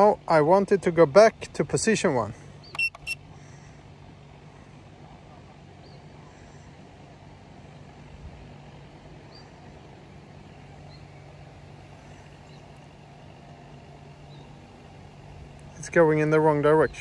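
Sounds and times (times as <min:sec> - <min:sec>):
faint high chirp: 0:02.6 - 0:03.2.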